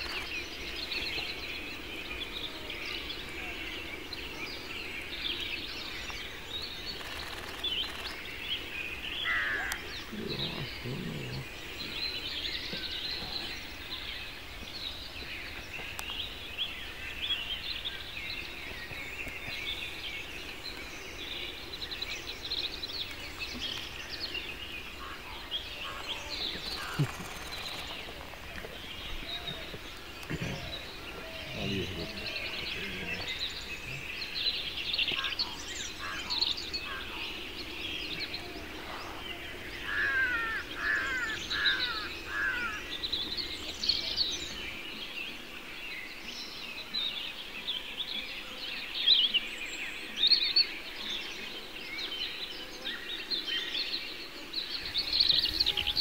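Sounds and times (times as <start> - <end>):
lower bird calls: 0.0 - 16.6, 22.7 - 44.5, 54.7 - 56.0
small birds chirping and singing: 0.0 - 56.0.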